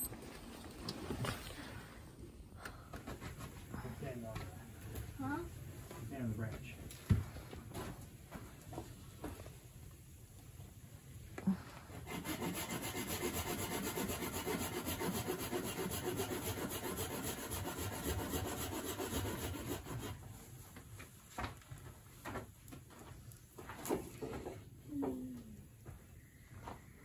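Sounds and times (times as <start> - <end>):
hand saw cutting firewood: 11.9 - 20.3.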